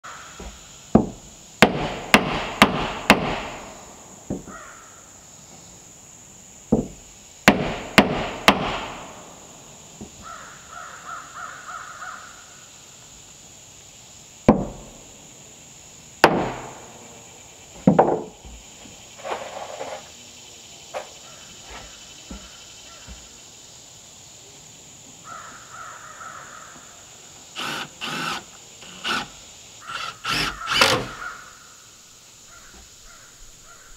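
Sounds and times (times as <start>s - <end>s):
knocks on wooden boards: 0.4s - 3.6s, 4.3s - 4.6s, 6.7s - 9.0s, 14.5s - 14.9s, 16.2s - 16.8s, 17.8s - 18.6s, 21.7s - 23.3s, 30.3s - 31.2s
bird calling: 10.1s - 12.6s, 27.6s - 31.8s, 32.4s - 33.9s.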